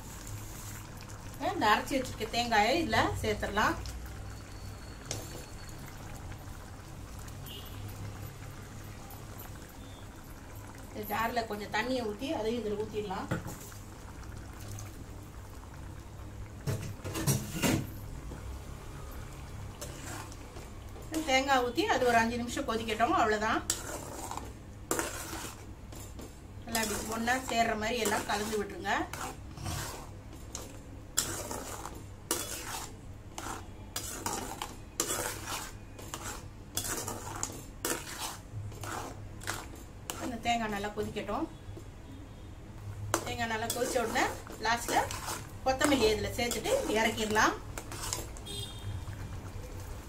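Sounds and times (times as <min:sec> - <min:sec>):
curry simmering in a pot: 0:00.0 - 0:50.0
spatula scraping metal pot: 0:19.8 - 0:20.5, 0:22.9 - 0:40.5, 0:43.1 - 0:48.8.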